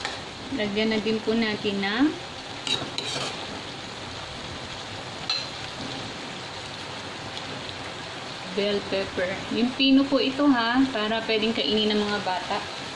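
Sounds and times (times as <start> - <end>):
vegetables sizzling in a wok: 0.0 - 12.9
spatula scraping a pan: 2.6 - 3.5.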